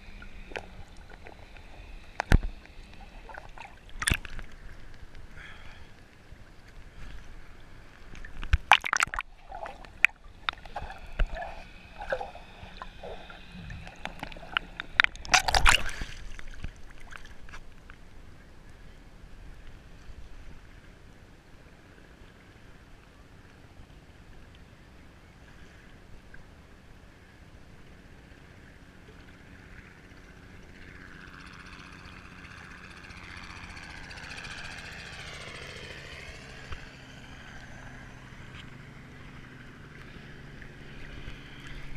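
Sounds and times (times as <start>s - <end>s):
water splashes: 0.0s - 18.1s
small waves sloshing and gurgling: 0.0s - 41.9s.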